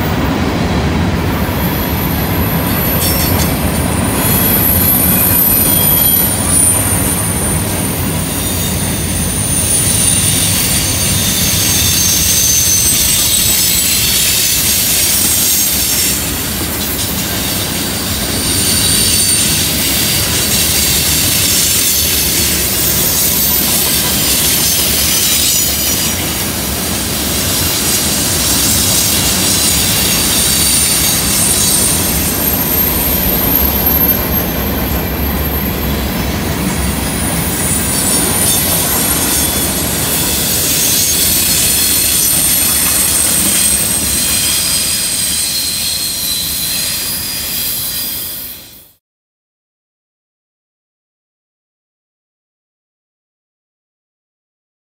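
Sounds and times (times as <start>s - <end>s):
steel wheels rumbling on rails: 0.0s - 49.0s
wheel flange squeal: 1.7s - 49.0s.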